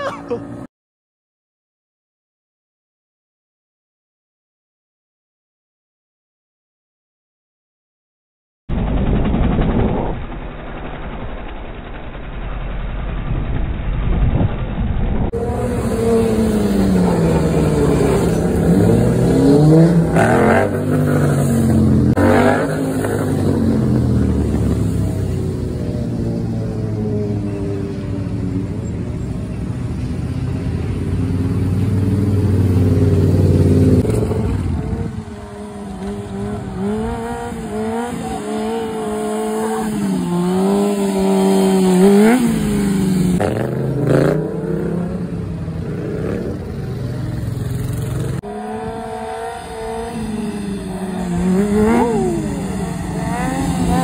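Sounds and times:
motorcycle engines revving: 15.3 - 54.0.

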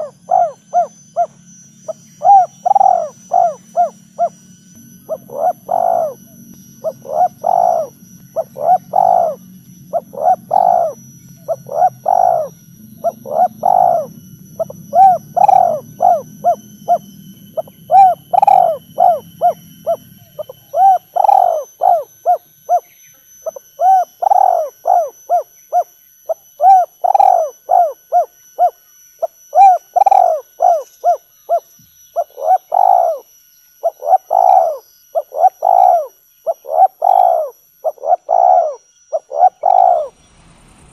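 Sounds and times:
dove cooing: 0.0 - 4.4, 5.0 - 40.1
low hum: 0.0 - 22.7, 39.1 - 40.9.

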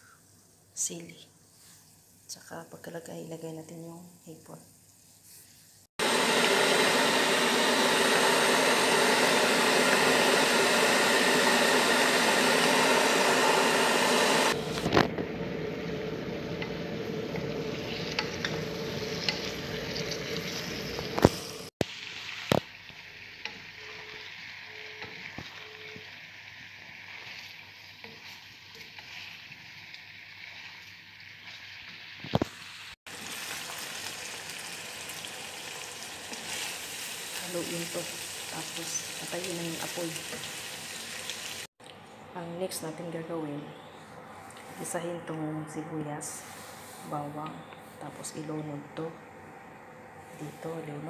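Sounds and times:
shrimp sizzling in hot oil: 6.1 - 41.7
stirring clicks: 16.5 - 21.4.

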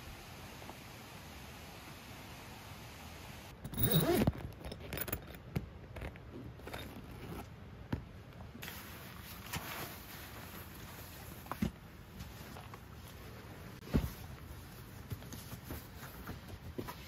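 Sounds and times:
tent zipper rasping: 3.7 - 5.4, 6.5 - 7.5.

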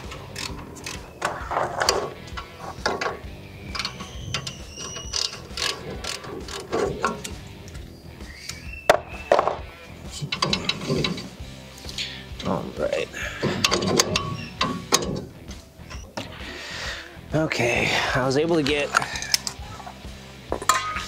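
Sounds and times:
ratchet wrench clicking: 0.0 - 1.2, 1.8 - 7.8, 13.5 - 15.0.

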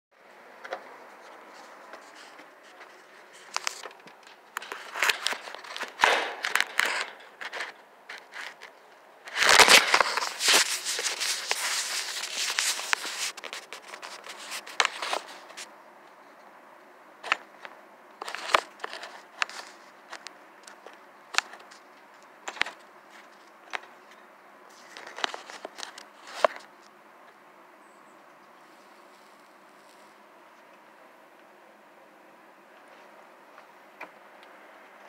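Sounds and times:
scraping and rustling: 0.6 - 15.7, 17.2 - 26.8.

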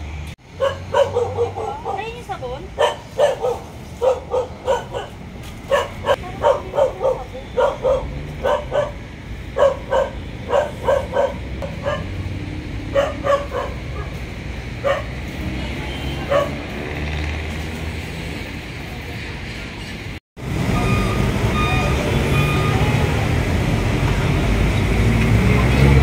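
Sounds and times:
dog barking: 0.6 - 2.2, 2.8 - 9.0, 9.6 - 12.2, 12.9 - 14.2, 14.8 - 15.2, 16.2 - 16.6.

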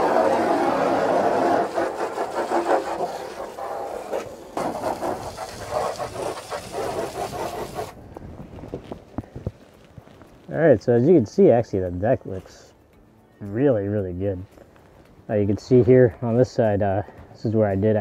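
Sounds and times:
hose spraying water on boat: 0.0 - 8.0.

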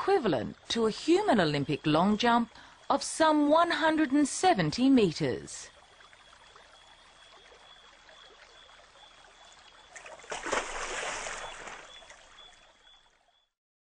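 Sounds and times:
water sloshing and trickling: 0.0 - 13.5
faint night ambience: 0.0 - 13.6
splash into water: 9.9 - 12.5.

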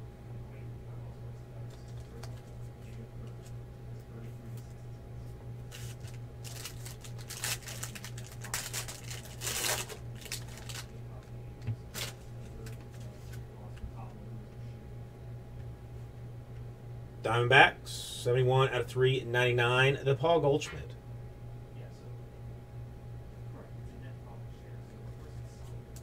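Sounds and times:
low electrical hum: 0.0 - 26.0
plastic wrapper crinkling: 5.7 - 11.0, 11.9 - 12.8.

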